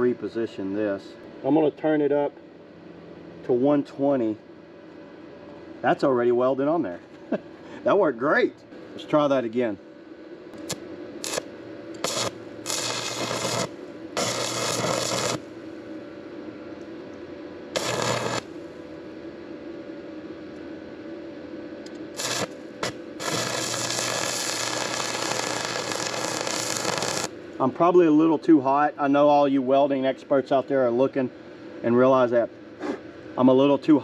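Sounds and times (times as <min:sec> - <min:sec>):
welding arc sizzling crackle: 0:10.5 - 0:16.0, 0:17.7 - 0:18.9, 0:21.8 - 0:28.2.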